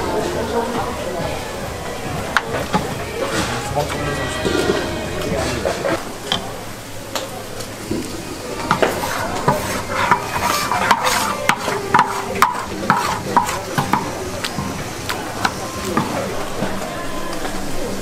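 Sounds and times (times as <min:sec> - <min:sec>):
ladles clacking and scraping pan: 0:08.6 - 0:16.3.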